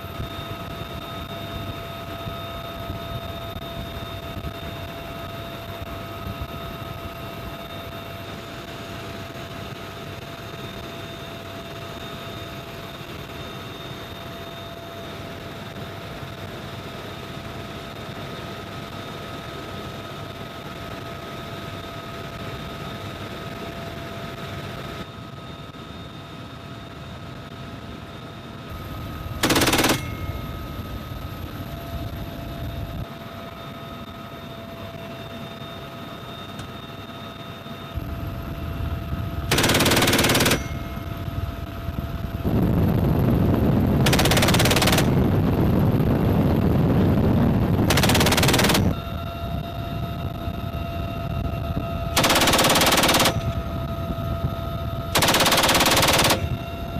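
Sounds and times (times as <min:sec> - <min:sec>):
helicopter turbine whine: 0:00.0 - 0:56.9
machine gun firing bursts: 0:29.4 - 0:30.3, 0:39.5 - 0:40.9, 0:44.0 - 0:45.2, 0:47.9 - 0:48.9, 0:52.2 - 0:53.6, 0:55.2 - 0:56.6.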